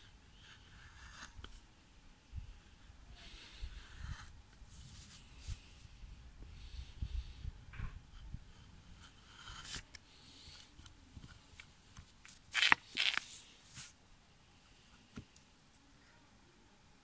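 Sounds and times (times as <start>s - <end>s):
carving gouge shaving wood: 0.3s - 1.6s, 8.1s - 11.6s.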